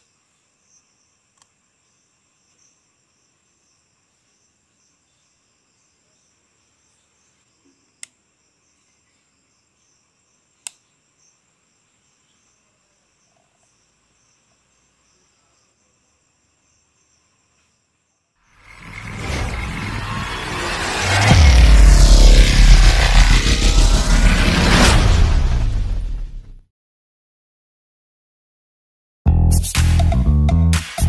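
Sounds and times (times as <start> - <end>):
crickets trilling: 0.0 - 20.0.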